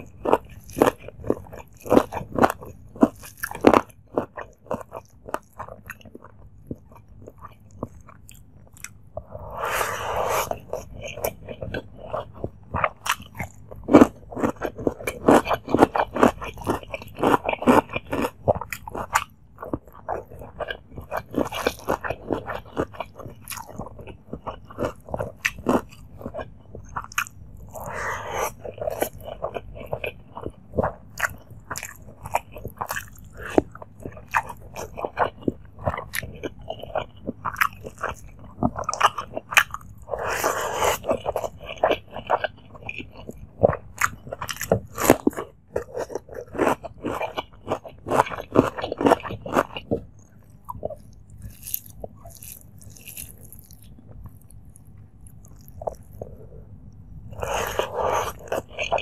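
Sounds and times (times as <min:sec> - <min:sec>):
wet chewing: 0:00.0 - 0:59.0
crunching bites of cucumber: 0:12.8 - 0:19.3, 0:43.9 - 0:56.2.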